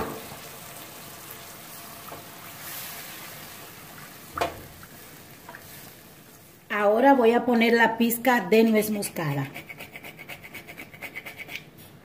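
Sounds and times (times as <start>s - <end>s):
milk sizzling in frying pan: 0.0s - 6.7s.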